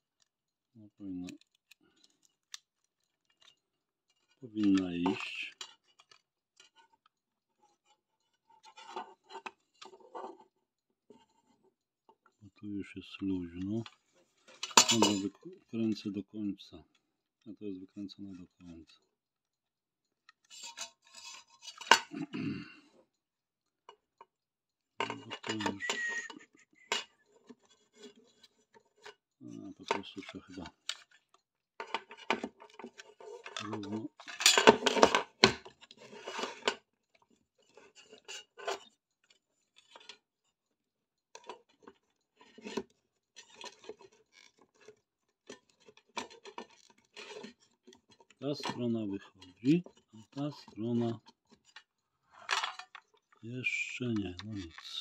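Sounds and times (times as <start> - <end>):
metal parts scraping: 13.8 - 15.4, 20.4 - 22.2, 30.0 - 36.8.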